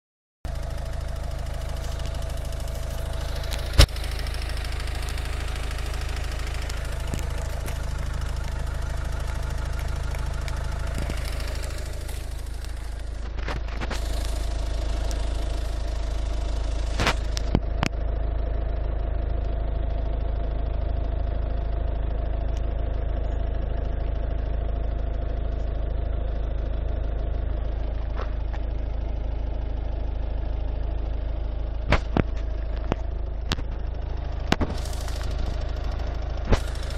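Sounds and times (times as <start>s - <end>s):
diesel engine idling: 0.5s - 36.9s
sharp clicks: 1.7s - 15.8s.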